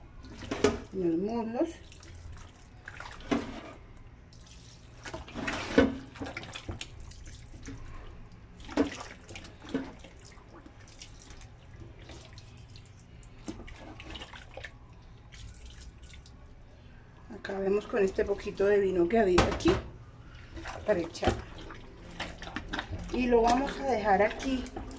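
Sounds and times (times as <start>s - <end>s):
wet splashing and squelching: 1.8s - 3.4s, 4.3s - 16.4s, 20.4s - 24.9s.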